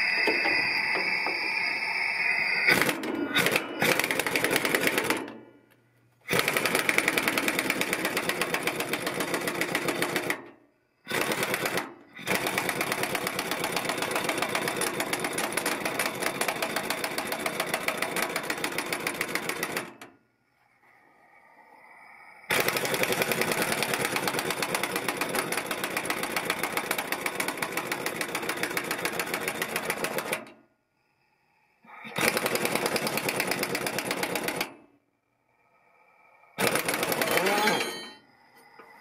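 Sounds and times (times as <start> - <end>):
air impact wrench hammering: 0.0 - 5.4, 6.3 - 10.5, 11.1 - 20.0, 22.5 - 30.5, 32.1 - 34.8, 36.6 - 38.2.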